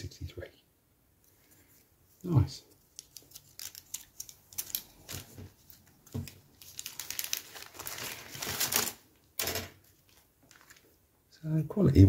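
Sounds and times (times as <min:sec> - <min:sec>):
plastic bag crinkling: 0:02.2 - 0:09.2, 0:09.8 - 0:11.0.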